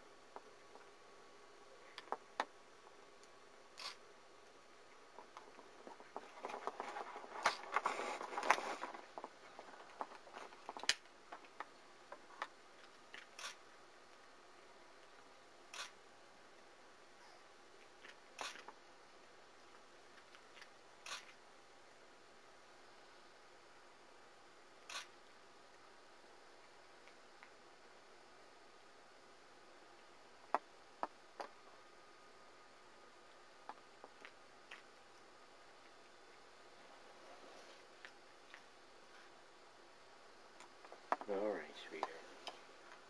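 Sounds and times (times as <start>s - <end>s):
faint steady hiss: 0.0s - 43.0s
rustling and scraping: 5.1s - 13.6s, 35.8s - 39.4s.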